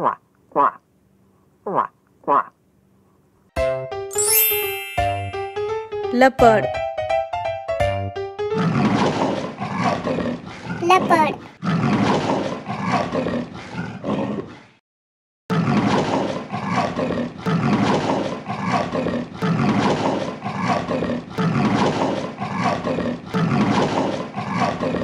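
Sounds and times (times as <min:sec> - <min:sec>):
leopard grunting roars: 0:08.6 - 0:10.8, 0:11.6 - 0:14.7, 0:15.5 - 0:25.0.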